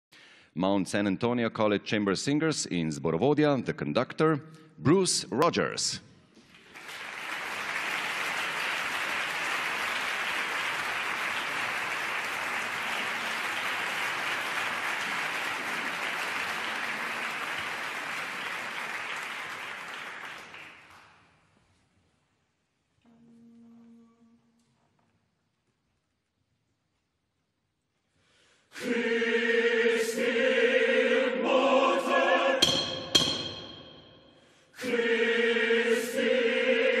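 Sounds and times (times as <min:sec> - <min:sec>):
audience applauding: 0:06.5 - 0:21.3.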